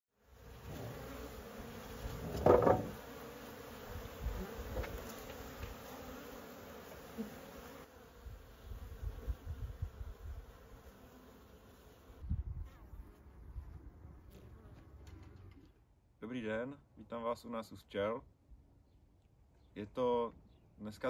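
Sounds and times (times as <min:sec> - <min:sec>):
honeybees buzzing: 0:00.2 - 0:15.1.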